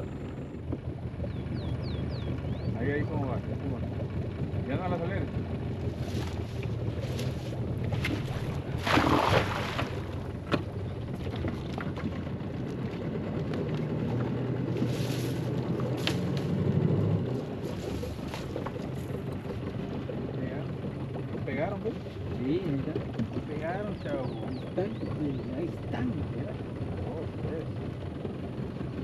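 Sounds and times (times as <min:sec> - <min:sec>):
low steady hum: 0:00.0 - 0:29.0
watery swishes: 0:05.7 - 0:13.0, 0:17.2 - 0:20.4
cast net splashing into water: 0:08.0 - 0:10.1.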